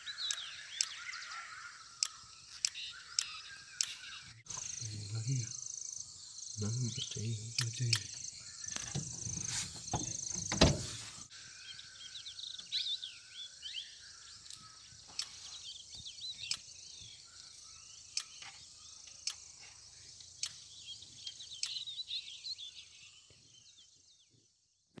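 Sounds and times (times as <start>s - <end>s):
small birds chirping: 0.0s - 25.0s
high insect drone: 4.5s - 12.2s
sharp clicks: 7.5s - 9.1s
rumbling handling noise: 8.3s - 11.3s.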